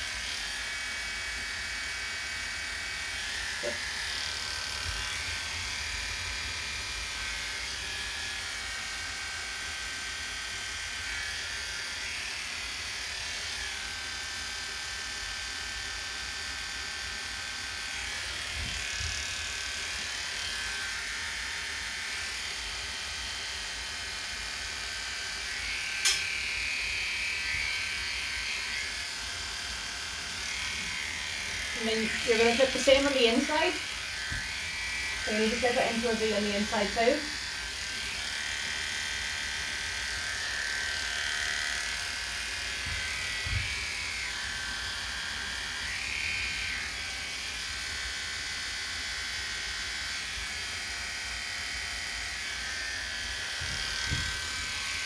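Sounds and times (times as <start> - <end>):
electric clippers running: 0.0 - 55.0
sharp click: 26.0 - 26.3.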